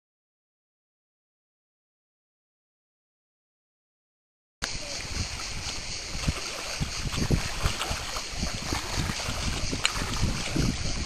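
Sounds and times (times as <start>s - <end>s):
water lapping on rocks: 4.6s - 11.0s
wind rumbling on microphone: 4.6s - 11.0s
dog wading through water: 4.9s - 11.0s.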